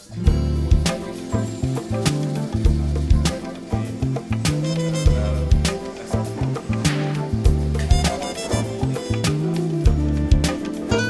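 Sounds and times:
background music with bass and drums: 0.0 - 11.0
sharp drum hit: 6.8 - 8.4.

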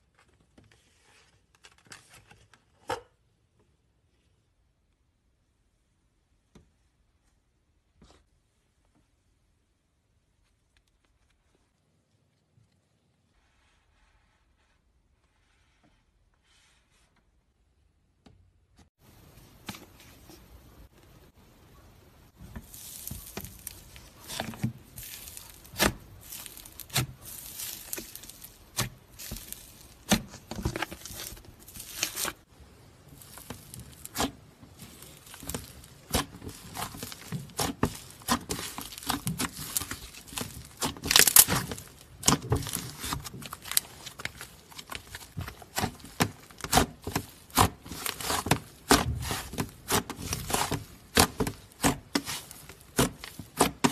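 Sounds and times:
slime squished crackling and popping: 22.6 - 53.9.

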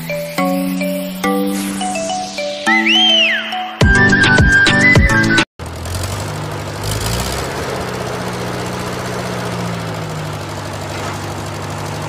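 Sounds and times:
tractor engine running: 5.6 - 12.0.

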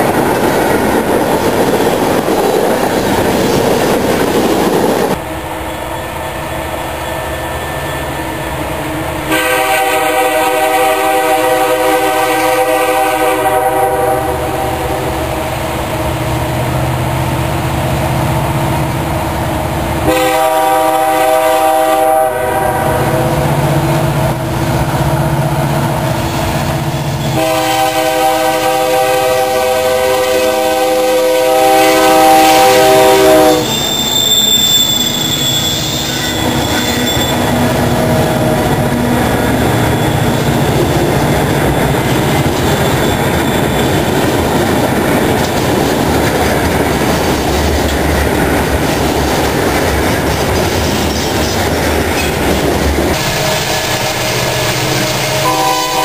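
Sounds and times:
locomotive horn blasts: 9.3 - 15.4, 20.0 - 23.5, 27.2 - 34.0, 53.1 - 56.0
locomotive and cars rumbling: 32.2 - 56.0.

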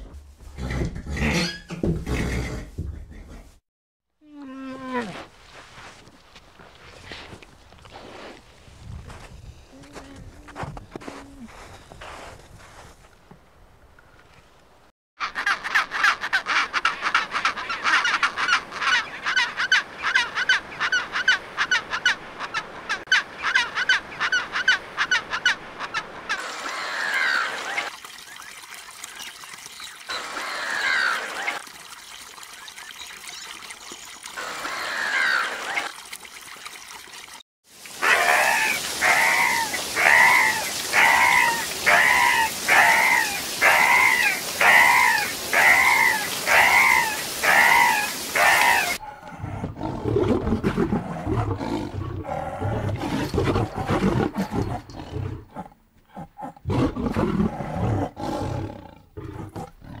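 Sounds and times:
falling calls over water: 17.6 - 27.9, 30.1 - 31.6, 34.4 - 35.9, 37.8 - 49.5.

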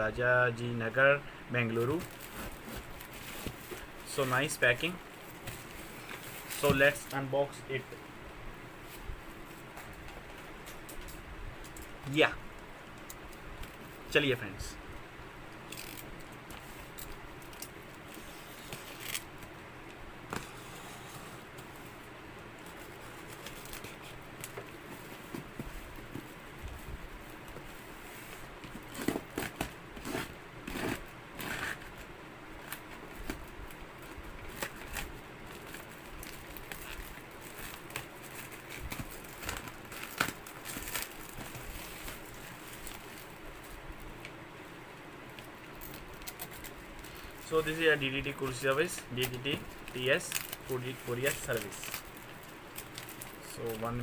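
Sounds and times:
steady background hiss: 0.0 - 54.0
plastic wrapping crinkling: 22.6 - 44.4, 45.2 - 54.0.

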